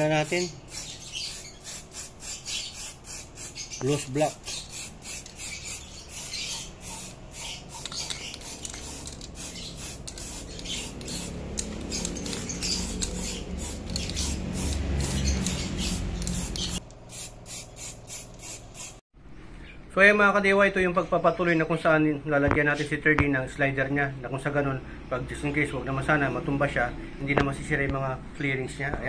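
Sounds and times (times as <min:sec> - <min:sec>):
spray paint can hissing: 0:00.2 - 0:19.0.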